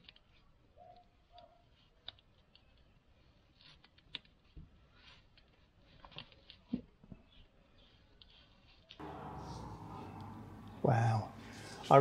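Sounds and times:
paper peeling clicks and crackles: 0:00.0 - 0:09.0.

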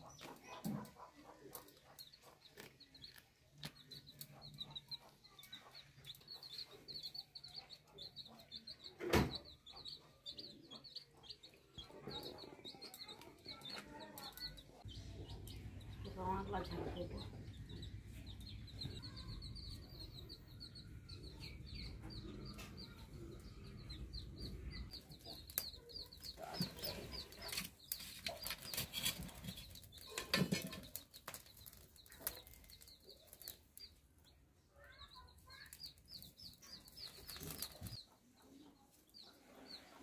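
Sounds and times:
baby chicks peeping: 0:00.0 - 0:40.0
crackles of chicken singeing: 0:00.0 - 0:40.0.

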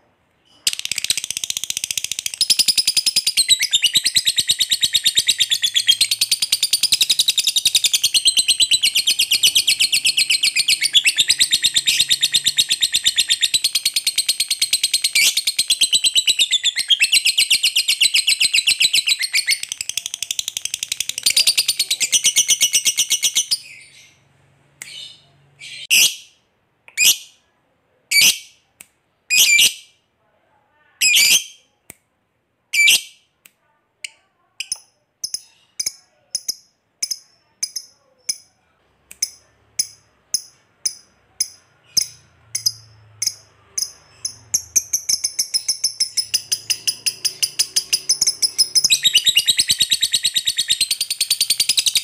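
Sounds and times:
lovebird trilling: 0:39.2 - 0:52.0.

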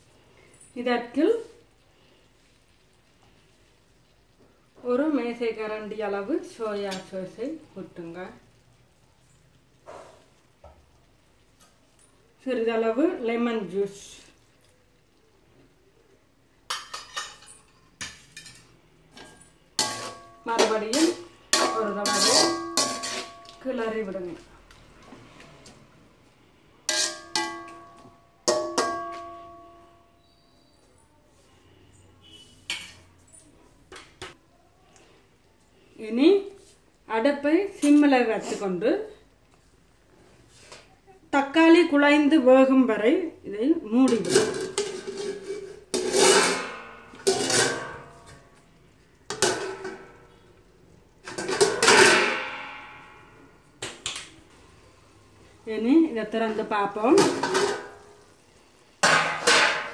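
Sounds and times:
metal plate clanking on wok rim: 0:16.7 - 0:23.6, 0:26.9 - 0:29.7, 0:44.1 - 0:48.4, 0:51.2 - 0:53.3
pot ringing: 0:19.8 - 0:23.7, 0:26.9 - 0:30.1, 0:51.6 - 0:53.5
metal spoon knocking on pot: 0:26.9 - 0:29.7.

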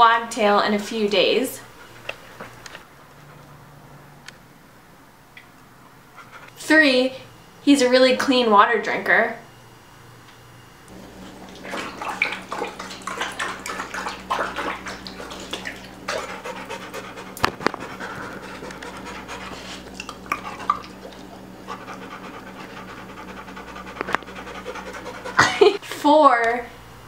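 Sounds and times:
dog lapping water: 0:10.9 - 0:25.8.

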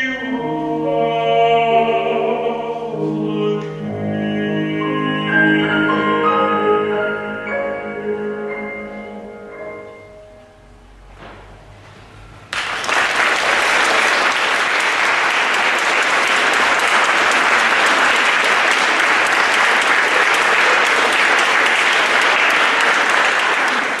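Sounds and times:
audience applauding: 0:12.5 - 0:24.0.

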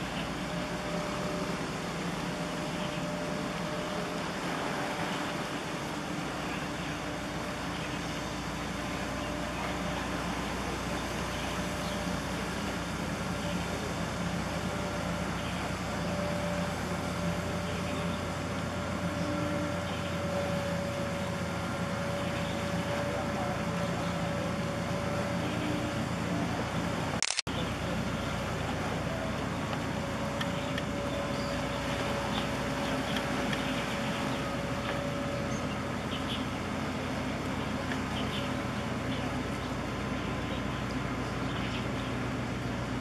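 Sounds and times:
ship engines droning: 0:00.0 - 0:43.0
steady machinery whine: 0:00.0 - 0:43.0.

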